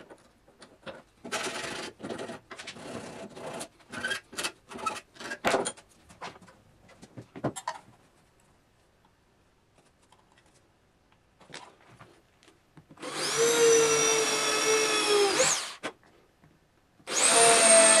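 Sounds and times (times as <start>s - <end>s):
electric drill boring into wood: 13.0s - 15.8s, 17.1s - 18.0s.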